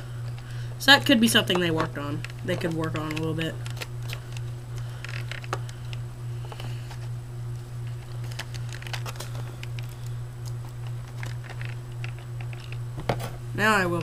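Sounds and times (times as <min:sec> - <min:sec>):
steady low hum: 0:00.0 - 0:14.0
packaging clicking and crinkling: 0:01.4 - 0:07.0, 0:07.8 - 0:13.3.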